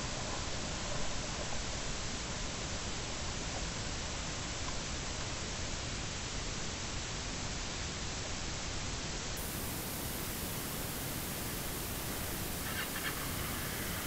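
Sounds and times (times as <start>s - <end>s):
wind rushing over microphone: 9.4s - 14.0s.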